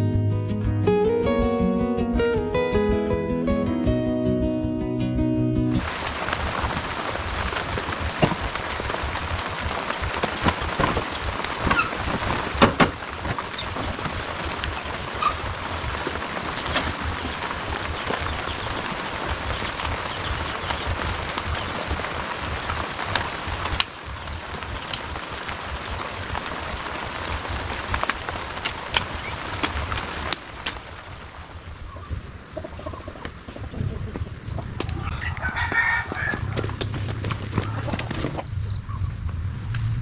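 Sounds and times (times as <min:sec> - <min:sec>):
steady hiss: 0:05.8 - 0:37.5
hoe chopping wet soil: 0:27.6 - 0:30.8
high-pitched insect drone: 0:31.0 - 0:40.0
rooster crowing: 0:34.8 - 0:36.9.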